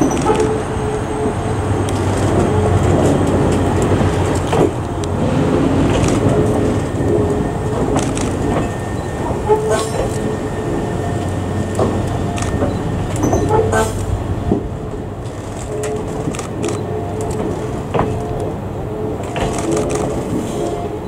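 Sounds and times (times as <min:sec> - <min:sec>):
train wheels knocking on track: 0:00.0 - 0:15.4
wheel squeals: 0:05.9 - 0:14.0.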